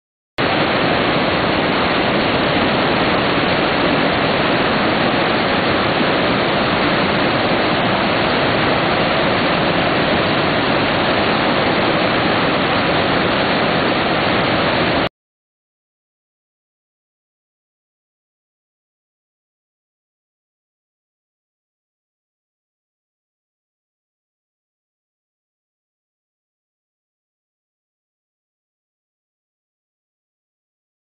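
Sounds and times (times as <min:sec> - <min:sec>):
waterfall rushing: 0:00.4 - 0:15.1.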